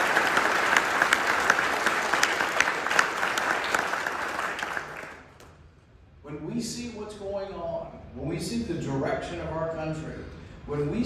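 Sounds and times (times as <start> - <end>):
audience clapping: 0.0 - 5.6.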